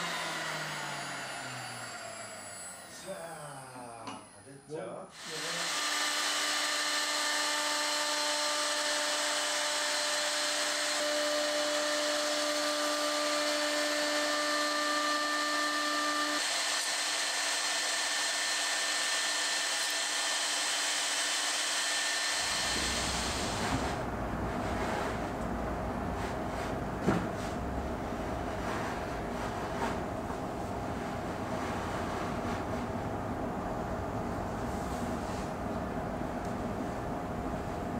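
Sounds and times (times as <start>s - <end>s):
router motor whine: 0.0s - 4.4s, 5.2s - 24.1s
hiss of wood cutting: 5.1s - 8.1s, 15.8s - 24.0s.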